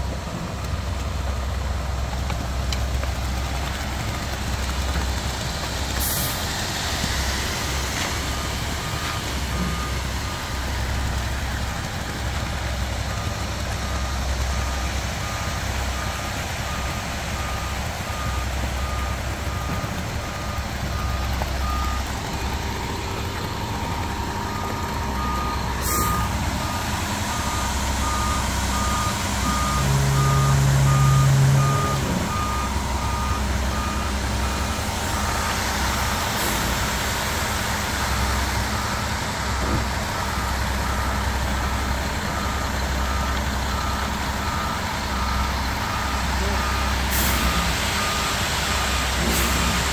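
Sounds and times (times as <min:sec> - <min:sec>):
truck engine rumbling: 0:00.0 - 0:49.9
backup alarm beeping: 0:23.7 - 0:35.5.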